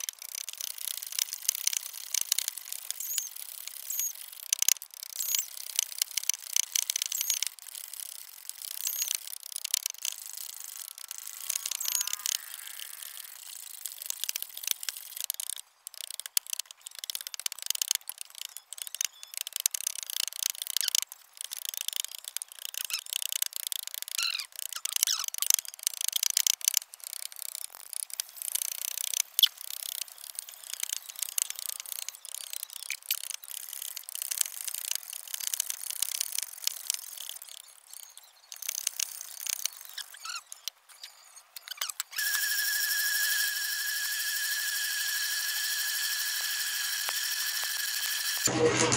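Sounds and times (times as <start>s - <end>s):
short squeaks: 2.9s - 4.3s, 5.1s - 5.7s, 8.8s - 10.1s, 24.1s - 25.6s, 38.5s - 43.8s.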